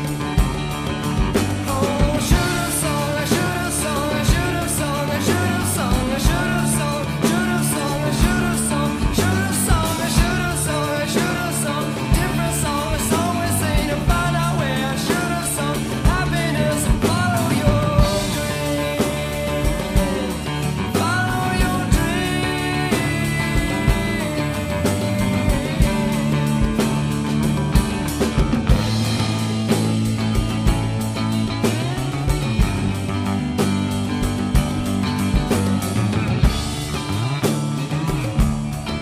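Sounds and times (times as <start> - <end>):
drum kit with cymbals: 0.0 - 39.0
rock song: 0.0 - 39.0
person singing: 1.4 - 28.8.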